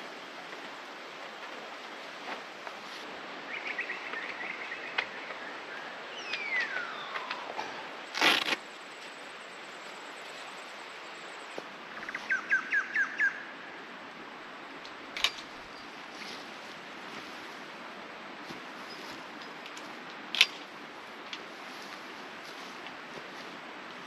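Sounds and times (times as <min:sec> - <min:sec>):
steady outdoor hiss: 0:00.0 - 0:24.0
bird chirping: 0:06.1 - 0:07.8.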